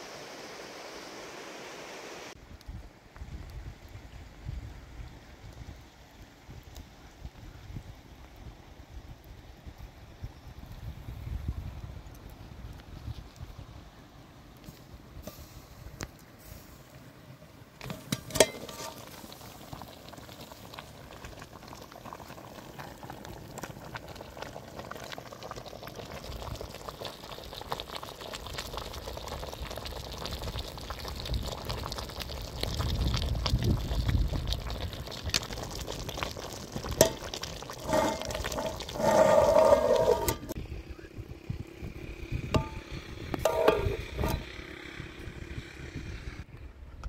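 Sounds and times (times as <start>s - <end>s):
watery liquid noise: 18.2s - 40.6s.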